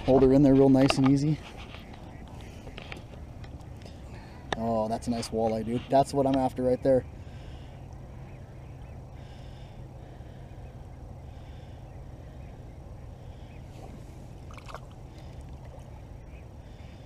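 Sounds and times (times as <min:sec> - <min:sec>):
steady low hum: 0:00.0 - 0:17.0
water sloshing: 0:13.7 - 0:16.2.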